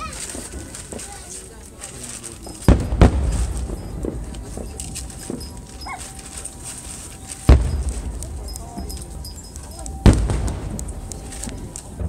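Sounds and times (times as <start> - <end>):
firework shells bursting: 2.4 - 12.0
low rumbling echo: 2.6 - 12.0.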